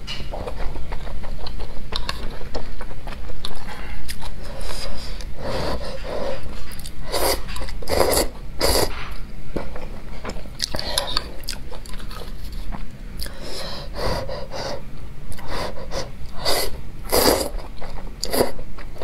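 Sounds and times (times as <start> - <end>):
chewing: 0.1 - 13.4
person slurping noodles: 7.0 - 8.9, 15.4 - 17.6.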